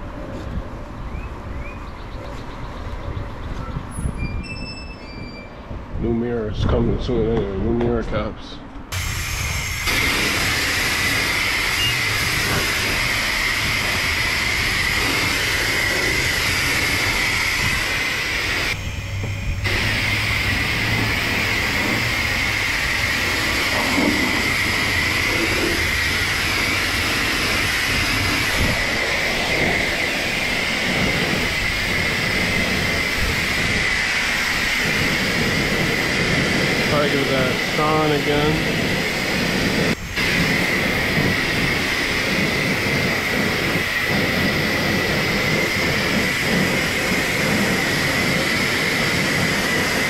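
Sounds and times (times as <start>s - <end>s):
high-pressure water spray hissing: 8.9s - 50.0s.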